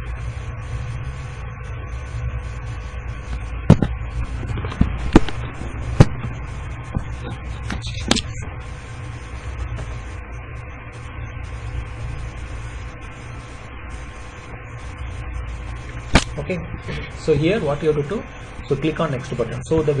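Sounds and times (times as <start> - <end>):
steady low hum: 0.0 - 20.0
sharp clicks and knocks: 3.3 - 8.4.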